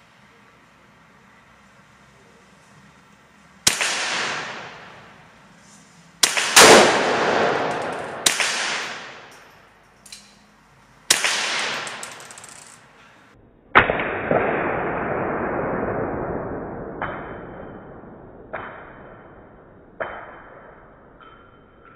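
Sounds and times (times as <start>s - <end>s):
rifle shots echoing indoors: 3.6s - 5.3s, 6.2s - 9.6s, 11.1s - 12.4s.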